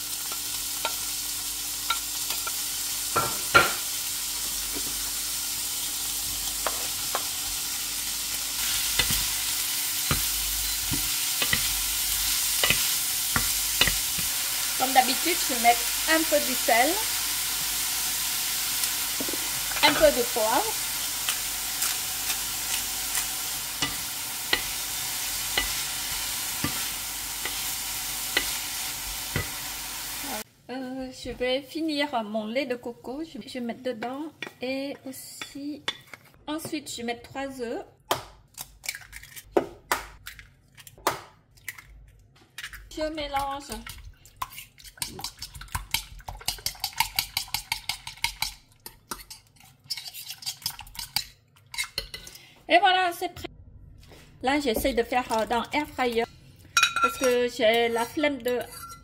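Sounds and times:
food sizzling in a frying pan: 0.0 - 31.4.

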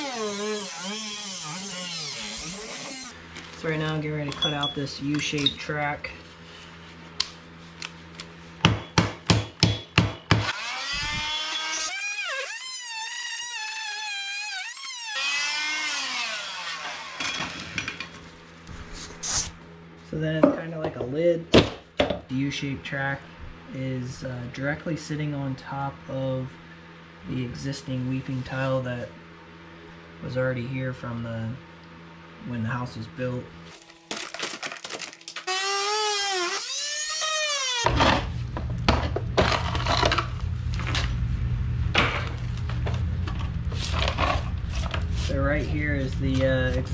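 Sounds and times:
angle grinder whining: 0.0 - 3.7, 10.4 - 18.2, 33.7 - 38.4
low steady hum: 0.0 - 11.3, 37.9 - 46.9.

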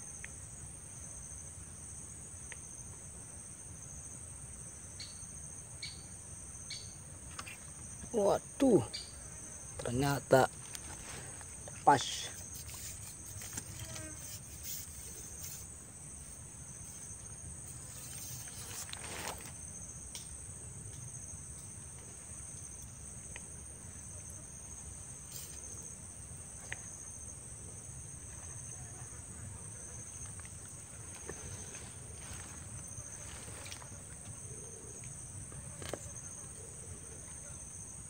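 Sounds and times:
insects shrilling: 6.7 - 20.4, 24.3 - 27.1.

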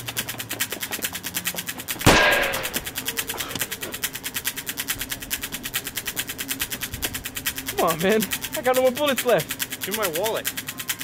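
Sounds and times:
fast steady ticking: 0.0 - 11.0
handgun shot echoing: 2.1 - 3.1.

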